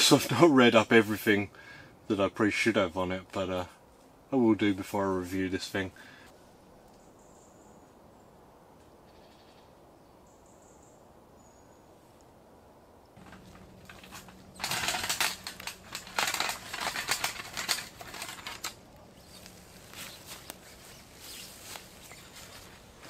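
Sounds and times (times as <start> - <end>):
metal chimney pipe rattling: 13.2 - 20.4.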